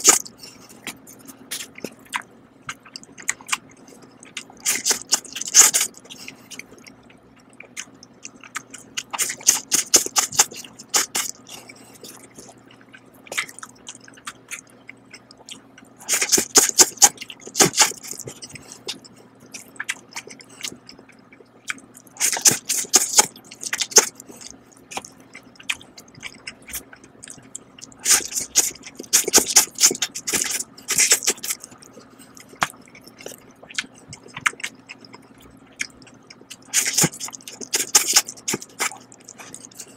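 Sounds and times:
person chewing: 0.0 - 39.9
person slurping noodles: 16.0 - 19.0, 28.0 - 31.6, 36.7 - 39.8.

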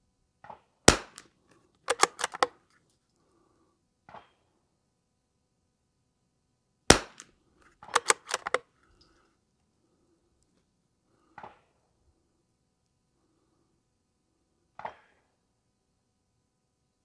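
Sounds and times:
rifle shot crack: 0.9 - 1.3, 6.9 - 7.3, 7.9 - 8.6
rifle bolt metallic clicks: 1.9 - 2.6, 7.8 - 8.6.

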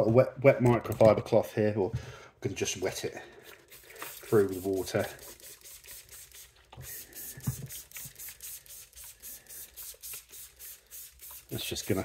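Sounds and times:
spray bottle squirts: 3.4 - 12.0.

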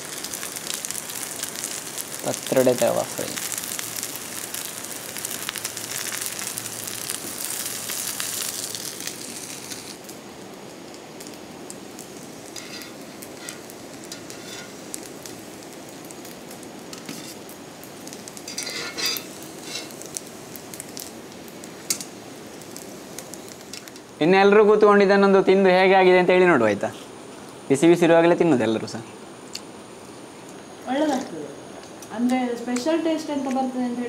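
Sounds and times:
food sizzling in oil: 0.0 - 34.0
metal dishes clinking: 18.5 - 19.9.

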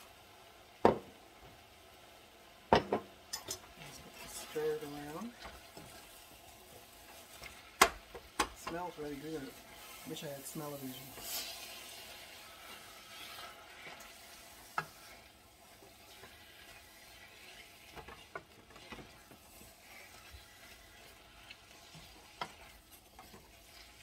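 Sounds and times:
meat sizzling: 0.0 - 24.0
spoon knocking against pan: 2.7 - 3.6
wooden spoon stirring in saucepan: 2.7 - 24.0.

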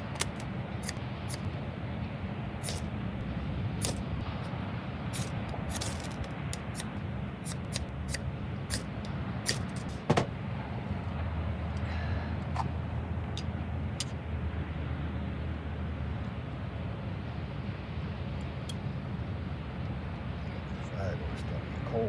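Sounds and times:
steady low rumble: 0.0 - 22.0
knife scraping ferro rod: 2.6 - 2.8, 3.8 - 4.0, 5.2 - 9.9.

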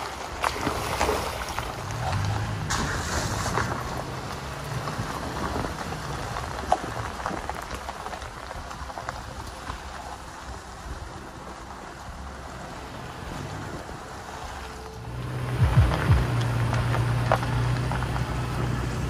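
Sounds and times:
tyres rolling over wet gravel: 0.0 - 19.0
low engine drone: 8.9 - 19.0.

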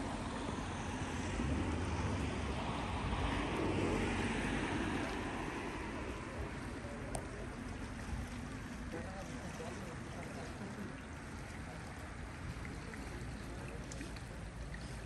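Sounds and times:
vehicle passing: 0.0 - 9.0.

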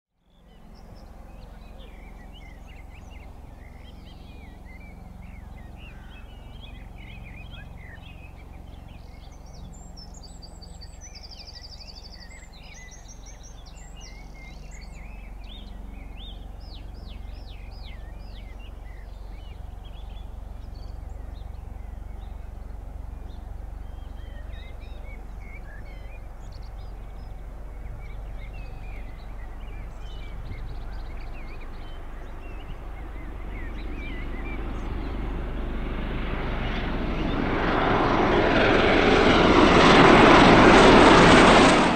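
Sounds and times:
aircraft rotors droning: 0.2 - 41.9
birds chirping: 0.3 - 41.9.

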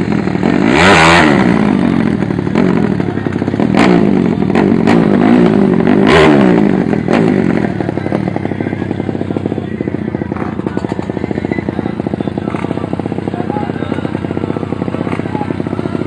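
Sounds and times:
motorcycle engine revving with pops: 0.0 - 16.0.

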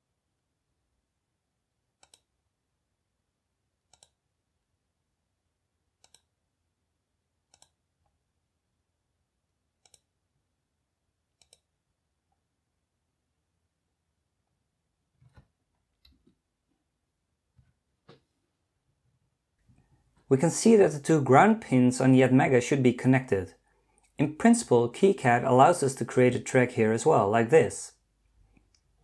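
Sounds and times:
computer mouse clicks: 2.0 - 2.3, 3.9 - 4.2, 6.0 - 6.4, 7.5 - 7.8, 9.8 - 10.1, 11.4 - 11.7.

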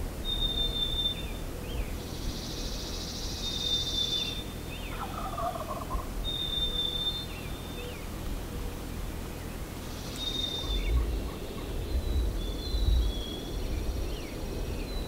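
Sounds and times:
low background noise: 0.0 - 15.0
turkey gobbling: 4.9 - 6.1.

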